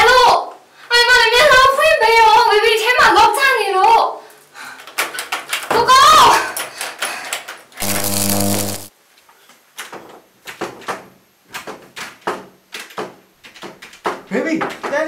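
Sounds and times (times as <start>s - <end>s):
harsh buzz: 7.8s - 8.9s.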